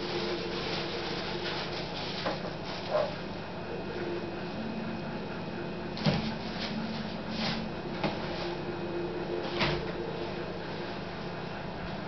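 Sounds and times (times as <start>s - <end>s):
plastic crinkling: 0.0s - 3.2s
steady low hum: 0.0s - 12.0s.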